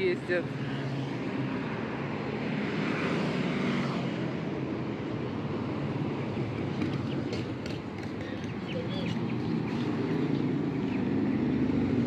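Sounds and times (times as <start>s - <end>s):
road traffic passing: 0.0s - 12.0s
motorcycle engines running: 5.7s - 12.0s.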